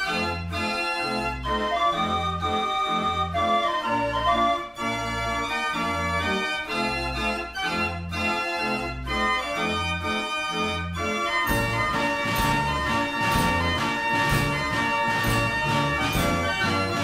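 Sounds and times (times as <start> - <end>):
organ-like keyboard notes: 0.0 - 17.0
pulsing bass line: 11.5 - 17.0.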